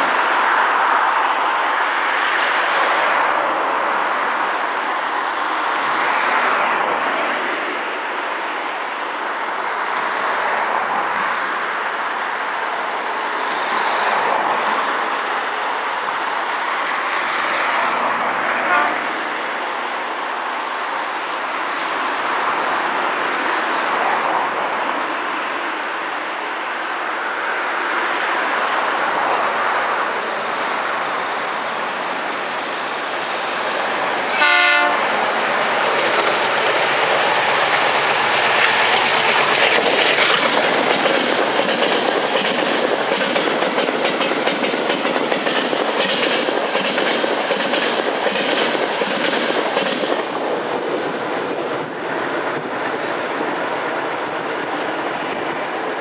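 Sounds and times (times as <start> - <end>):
train horn blast: 18.6 - 19.2, 34.3 - 35.2
diesel locomotive engine running: 30.8 - 52.9
wagon wheels clickety-clack: 37.5 - 50.1.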